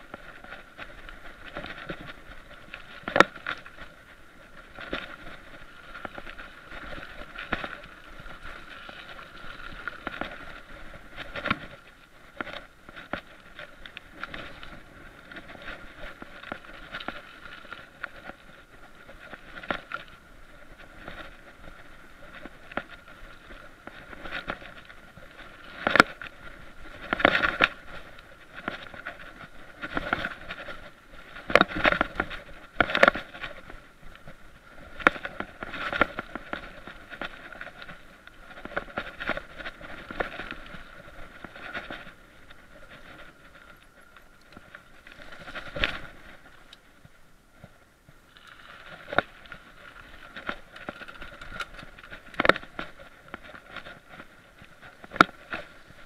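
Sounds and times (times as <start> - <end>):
bike frame rattling: 0.0 - 46.9, 48.3 - 56.0.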